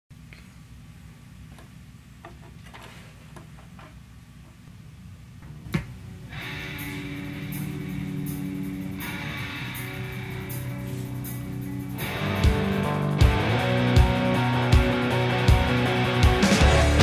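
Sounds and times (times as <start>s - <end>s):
low steady hum: 0.1s - 14.6s
guitar music from record: 5.4s - 17.0s.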